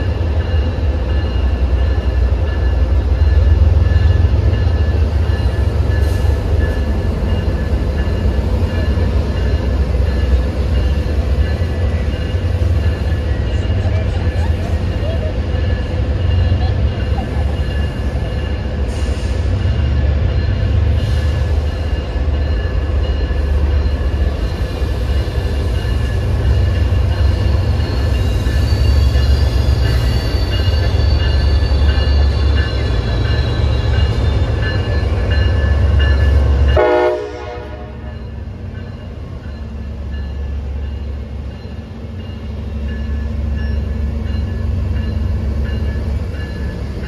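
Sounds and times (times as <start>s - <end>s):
diesel locomotive engine drone: 0.0s - 47.0s
train coaches rumbling: 0.0s - 47.0s
train horn tone: 36.7s - 38.2s.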